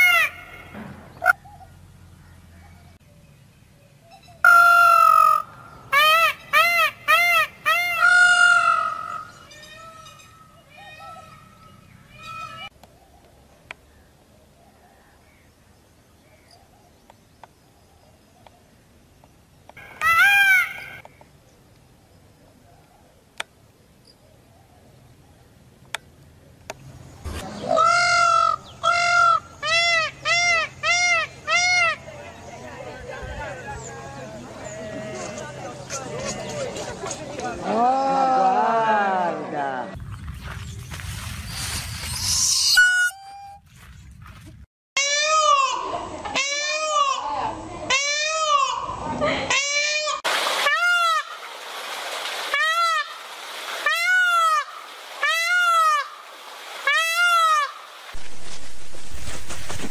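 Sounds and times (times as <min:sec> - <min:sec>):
peacock calling: 0:00.0 - 0:03.2, 0:04.0 - 0:12.8, 0:19.8 - 0:21.1, 0:27.2 - 0:32.6, 0:41.6 - 0:43.7, 0:45.0 - 0:51.5, 0:52.4 - 0:57.9.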